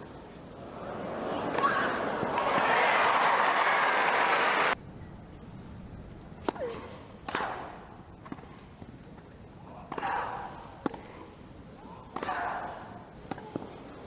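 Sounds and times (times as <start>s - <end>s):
crowd applause: 0.7s - 4.8s.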